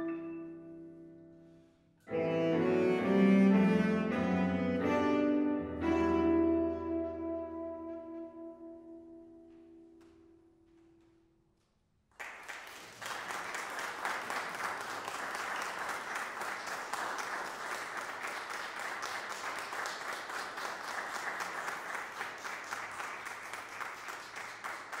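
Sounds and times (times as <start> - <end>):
saxophone and piano chord: 2.1 - 9.5
applause: 12.1 - 25.0.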